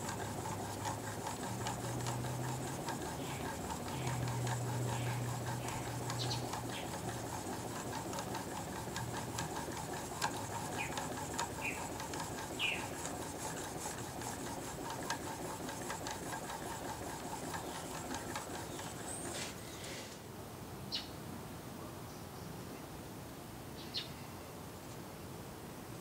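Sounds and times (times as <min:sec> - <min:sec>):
blade rasping on sharpening stone: 0:00.1 - 0:19.4.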